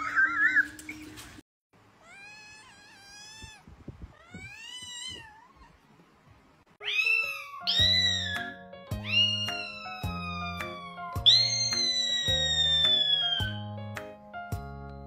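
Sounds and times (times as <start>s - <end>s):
kitten meowing: 2.0s - 5.8s, 6.8s - 13.6s.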